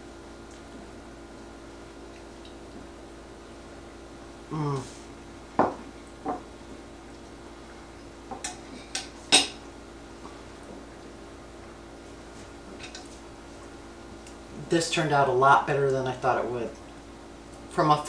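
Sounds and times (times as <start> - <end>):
person humming while chewing: 4.4 - 5.1
plate set down on wooden counter: 5.6 - 6.4.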